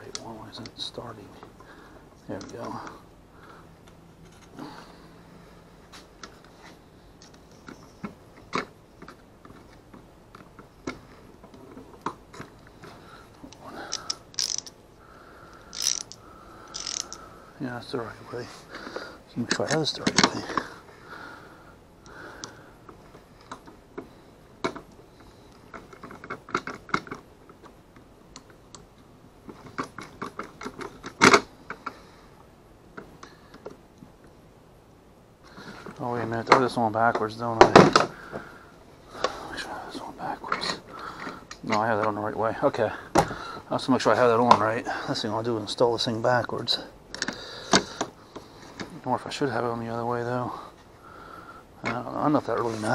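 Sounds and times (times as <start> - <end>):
small metal clicks and taps: 15.8 - 17.2.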